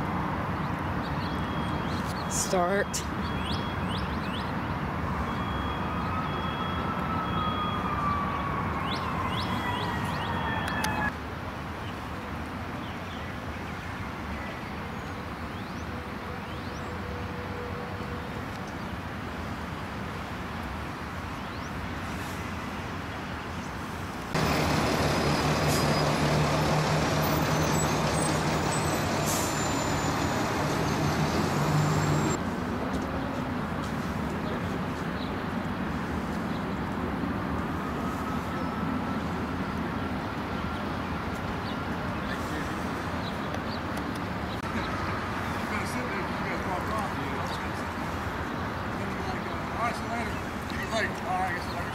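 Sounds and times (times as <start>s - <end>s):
low engine hum: 24.3s - 32.4s
vehicle engines running: 24.3s - 35.8s.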